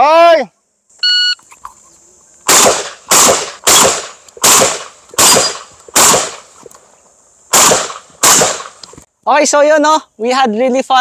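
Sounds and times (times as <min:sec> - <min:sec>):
shotgun shots: 0:02.5 - 0:06.5, 0:07.5 - 0:08.8.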